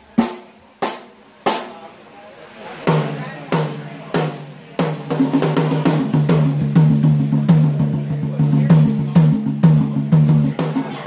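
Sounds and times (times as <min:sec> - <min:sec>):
drum kit beat: 0:00.0 - 0:02.0, 0:02.9 - 0:11.0
bass guitar notes: 0:05.6 - 0:10.6.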